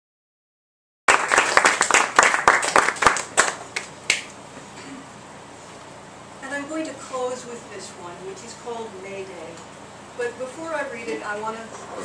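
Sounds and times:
small audience applauding: 0:01.1 - 0:04.3.

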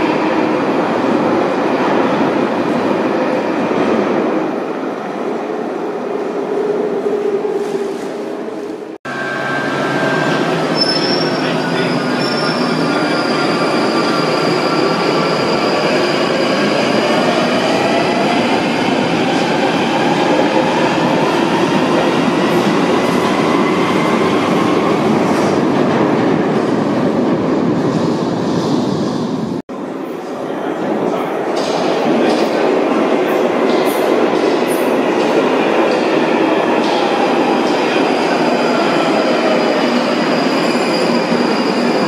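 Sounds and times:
high squeal: 0:09.1 - 0:17.0, 0:38.8 - 0:42.0.

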